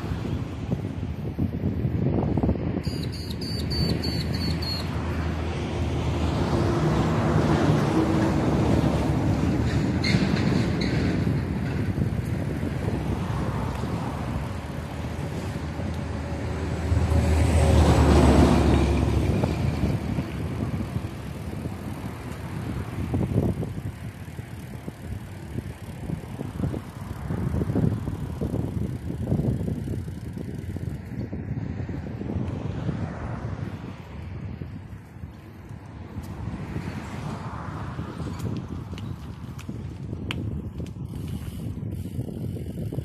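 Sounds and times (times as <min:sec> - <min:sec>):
wind noise on microphone: 0:00.0 - 0:43.0
bike rattling over dirt track: 0:06.4 - 0:31.2.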